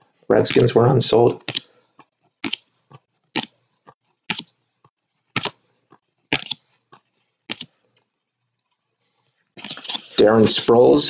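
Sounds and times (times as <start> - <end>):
trading cards flipped by hand: 0.4 - 0.7, 1.4 - 4.6, 5.3 - 7.7, 9.6 - 10.2.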